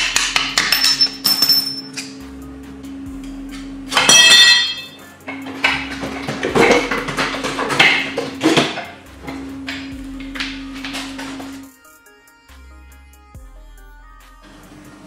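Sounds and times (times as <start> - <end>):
loud ringing metal clang: 0.7 - 2.2, 3.9 - 5.0
metal clanks and knocks: 3.9 - 11.6.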